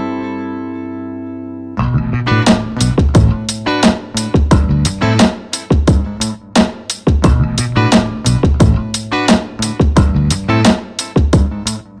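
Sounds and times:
guitar: 0.0 - 12.0
steady drum beat: 2.5 - 11.8.

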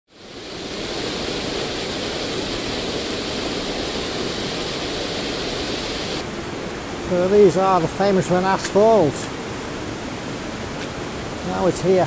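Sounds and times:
waterfall rushing into pool: 0.1 - 12.0.

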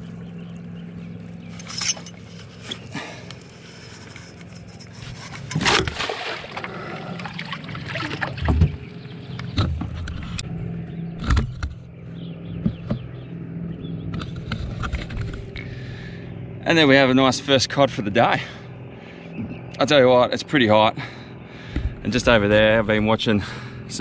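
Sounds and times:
steady low hum: 0.0 - 24.0
water splashing: 5.6 - 9.0.

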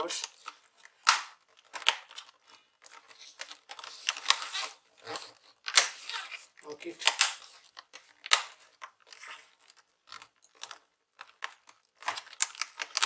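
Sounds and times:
plastic clips snapping in: 7.0 - 7.4.

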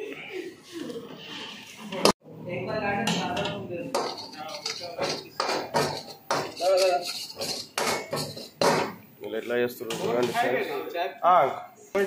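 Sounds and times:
metal ladle scraping a wok: 3.1 - 8.7.

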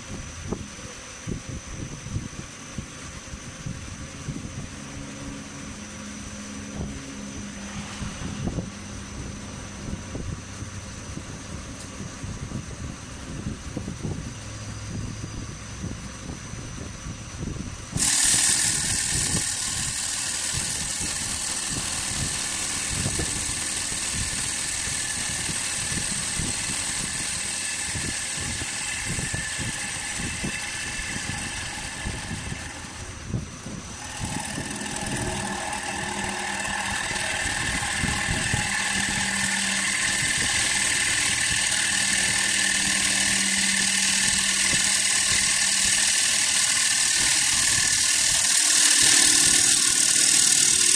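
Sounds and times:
lathe humming: 17.7 - 50.9
tool scraping wood on a lathe: 18.0 - 50.9.

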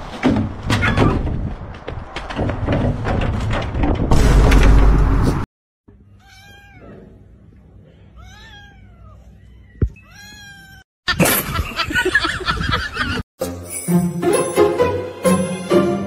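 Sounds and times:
cat meowing: 6.1 - 7.2, 8.2 - 10.8.

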